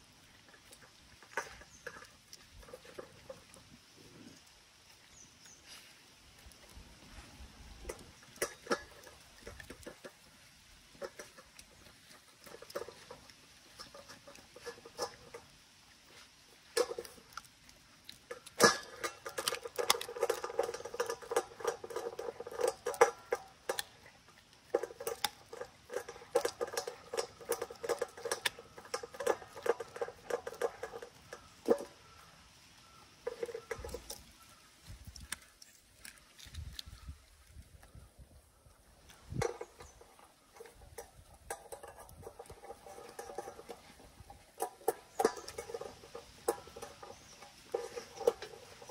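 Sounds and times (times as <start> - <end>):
puppy chewing and licking: 0.0 - 48.9
teeth clicking on metal bowl: 7.8 - 10.3, 10.9 - 15.6, 16.6 - 48.9.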